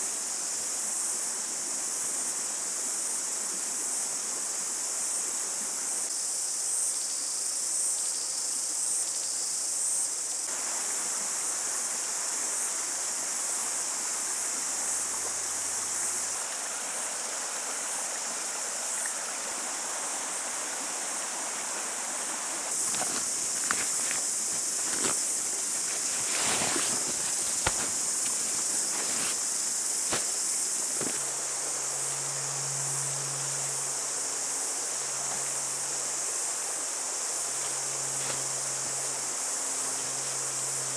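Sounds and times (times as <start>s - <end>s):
insects chirping: 0.0s - 40.9s
stream rushing over rocks: 10.5s - 32.1s, 33.8s - 40.9s.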